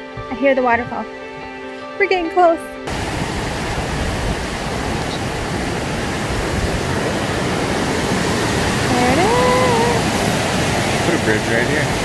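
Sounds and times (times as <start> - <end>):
waterfall rushing: 2.9 - 12.0.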